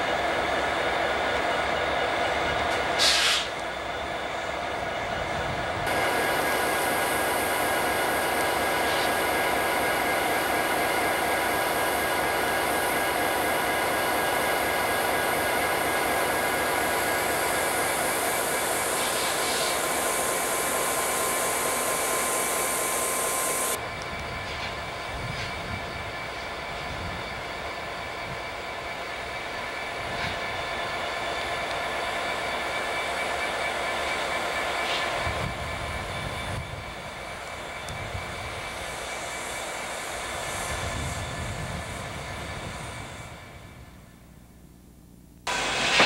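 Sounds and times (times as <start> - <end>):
diesel locomotives idling: 0.0 - 44.3
train cars rolling past: 45.5 - 46.0.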